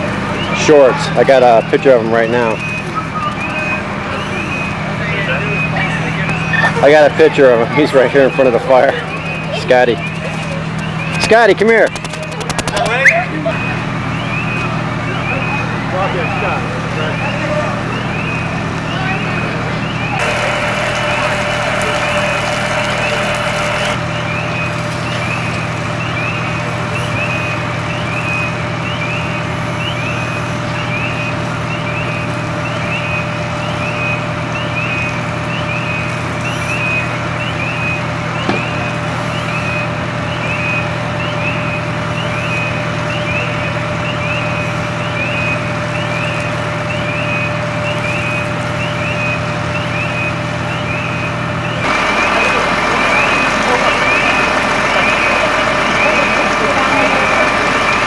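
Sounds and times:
fire engine running: 0.0s - 58.0s
high electronic chirp: 8.1s - 16.4s.

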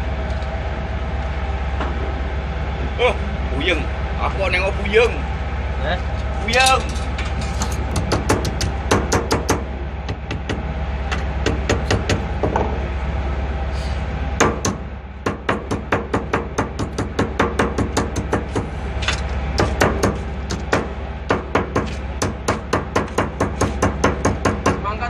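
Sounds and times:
low hum: 0.0s - 25.0s
hammer beating on metal plate: 7.9s - 10.6s, 11.4s - 12.8s, 14.4s - 18.7s, 19.6s - 24.8s.

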